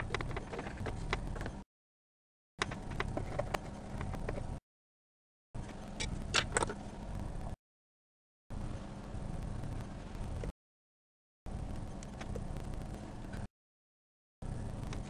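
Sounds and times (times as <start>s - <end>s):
steady low hum: 5.6s - 7.6s, 8.5s - 10.5s, 11.5s - 13.5s, 14.4s - 15.0s.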